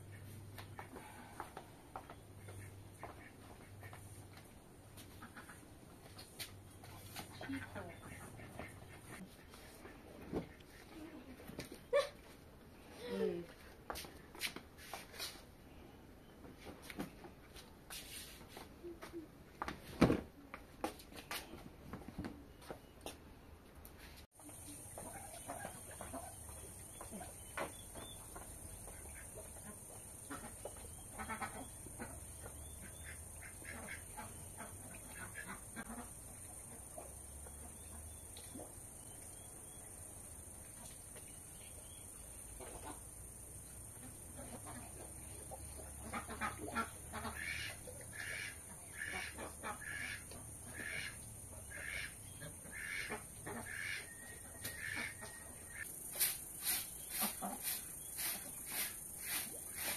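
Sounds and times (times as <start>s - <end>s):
farm animals calling: 44.0s - 55.9s.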